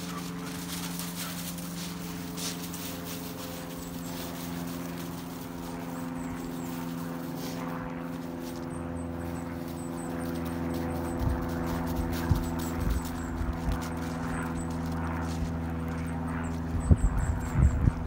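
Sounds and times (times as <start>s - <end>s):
low mechanical hum: 0.0s - 18.0s.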